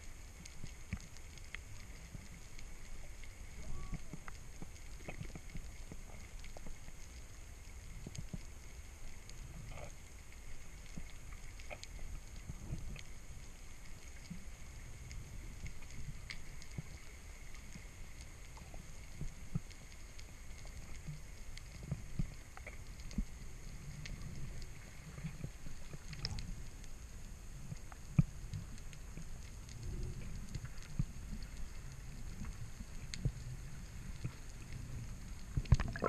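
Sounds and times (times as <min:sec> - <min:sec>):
sea water rumbling: 0:28.6 - 0:36.0.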